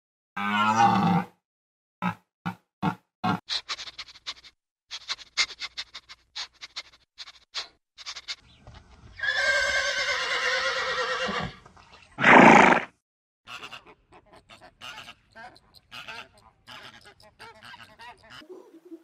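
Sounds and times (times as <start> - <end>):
horse whinnying: 0.4 - 1.3, 9.2 - 11.6, 12.2 - 12.9
horse snorting: 12.2 - 12.9.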